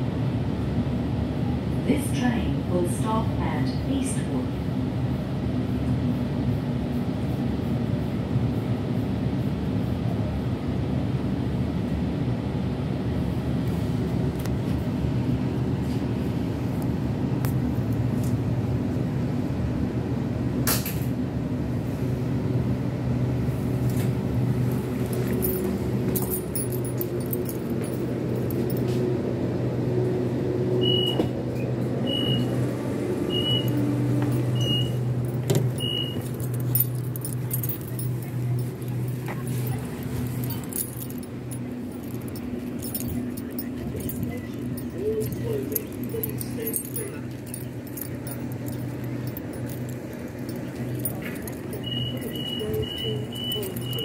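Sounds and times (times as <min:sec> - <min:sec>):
train rumble inside carriage: 0:00.0 - 0:54.0
short high beeps: 0:34.6 - 0:35.0, 0:51.8 - 0:54.0.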